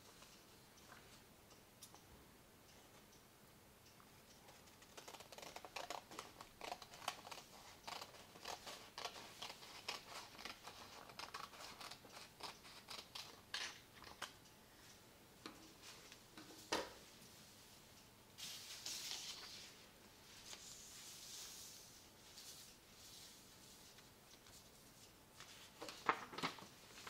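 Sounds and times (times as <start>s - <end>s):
scissors snipping paper: 4.5s - 14.3s.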